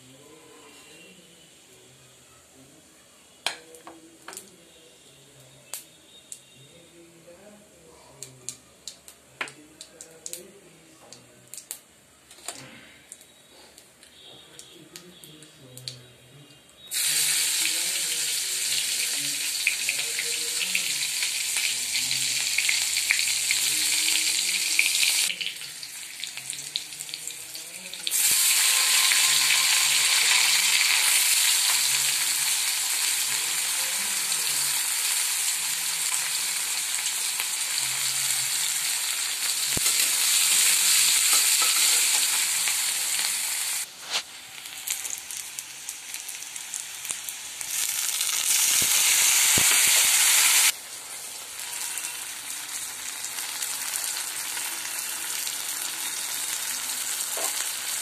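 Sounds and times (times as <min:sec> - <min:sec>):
onions sizzling in hot oil: 0:16.9 - 0:58.0.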